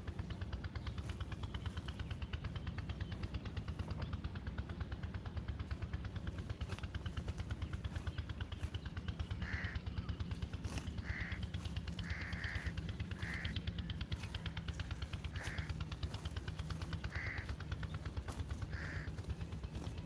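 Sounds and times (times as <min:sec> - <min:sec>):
low throbbing: 0:00.0 - 0:20.0
crow cawing: 0:09.2 - 0:20.0.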